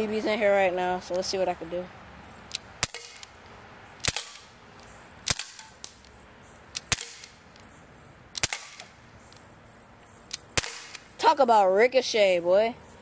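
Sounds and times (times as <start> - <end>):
pistol firing pops: 2.5 - 3.4, 4.0 - 4.6, 5.3 - 6.0, 6.7 - 7.4, 8.4 - 9.0, 10.3 - 11.1.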